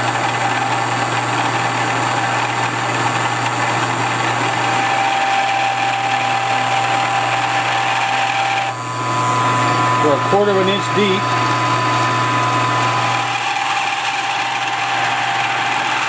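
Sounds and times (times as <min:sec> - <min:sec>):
cutter cutting metal: 0:00.0 - 0:16.0
milling machine motor hum: 0:00.0 - 0:16.0
thin steady whine: 0:05.8 - 0:15.5.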